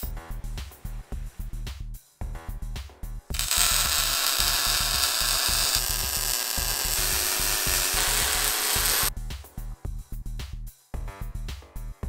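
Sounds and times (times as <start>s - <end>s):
background music with beat: 0.0s - 12.0s
welder hissing: 3.3s - 9.1s.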